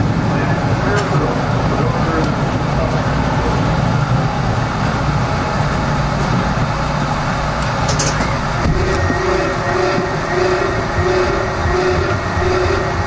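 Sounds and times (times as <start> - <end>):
subway train rumble: 0.0 - 13.0.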